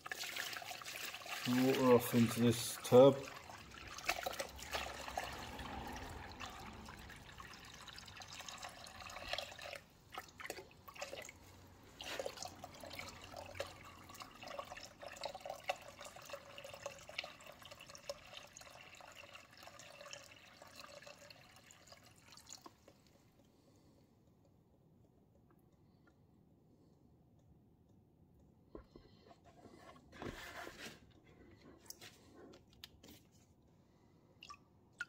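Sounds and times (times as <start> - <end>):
water trickling into tub: 0.0 - 23.5, 34.3 - 35.0.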